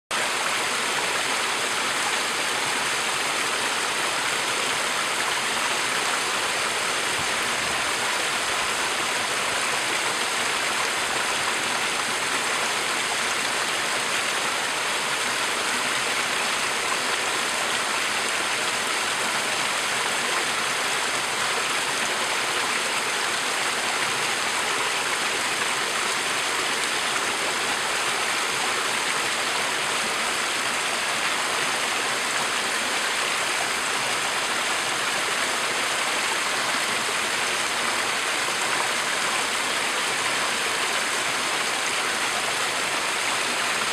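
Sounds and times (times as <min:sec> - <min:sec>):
stream splashing over rocks: 0:00.2 - 0:43.9.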